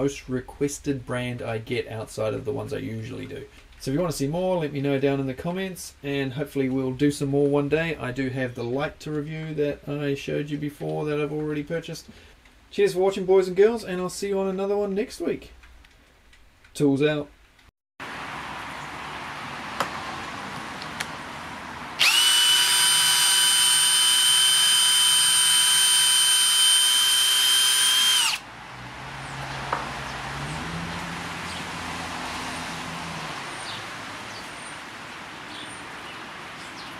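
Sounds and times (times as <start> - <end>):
cordless drill whining: 22.0 - 28.5.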